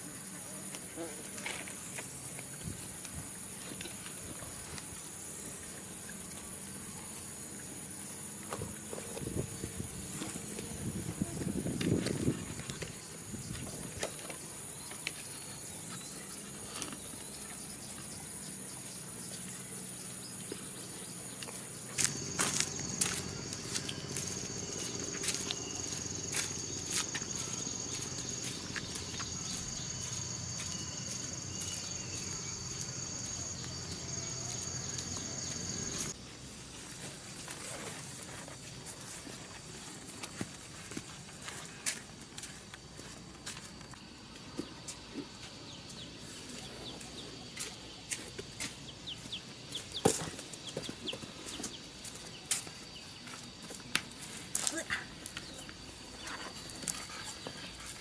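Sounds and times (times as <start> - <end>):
insects chirring: 0.0 - 58.0
sandal footsteps on concrete: 21.4 - 36.1.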